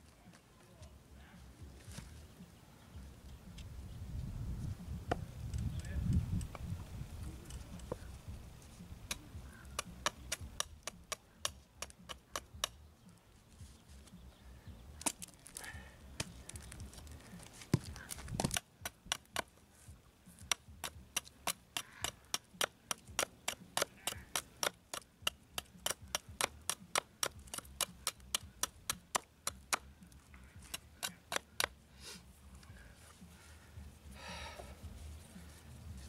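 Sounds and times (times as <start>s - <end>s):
knife chopping into wood: 17.7s - 19.5s, 20.5s - 29.8s.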